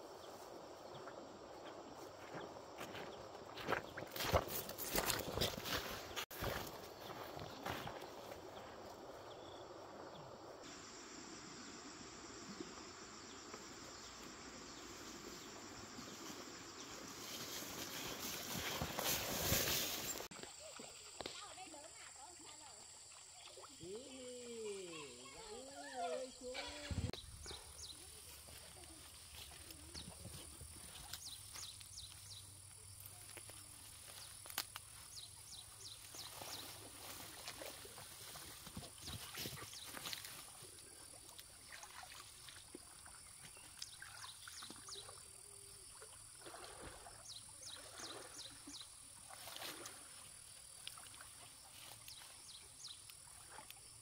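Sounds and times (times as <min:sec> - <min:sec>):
faint outdoor ambient hiss: 0:06.4 - 0:54.0
high insect drone: 0:10.4 - 0:20.3.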